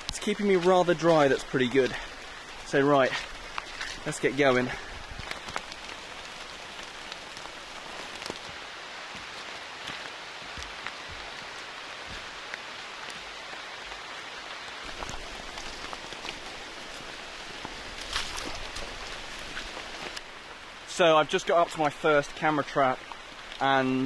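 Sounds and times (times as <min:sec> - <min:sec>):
drops tapping on leaves: 0:00.0 - 0:13.2
heavy rain hissing: 0:00.0 - 0:24.0.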